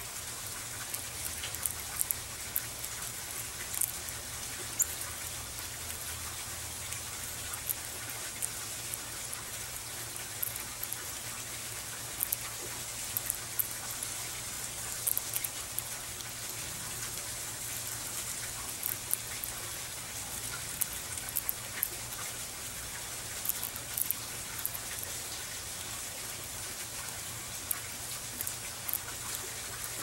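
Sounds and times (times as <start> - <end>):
steady hiss: 0.0 - 30.0
squirrel cracking seeds: 0.2 - 30.0.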